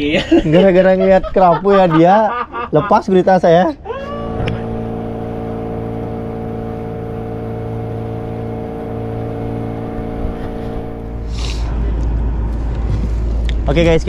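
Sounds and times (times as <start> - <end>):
boat engine droning: 4.0 - 13.3.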